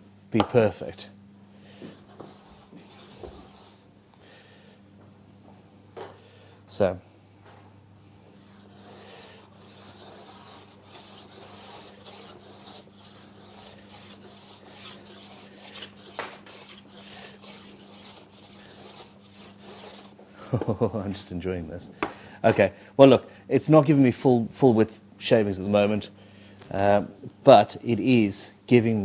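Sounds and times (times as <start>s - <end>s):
block plane shaving wood: 2.0s - 3.8s, 8.4s - 20.2s.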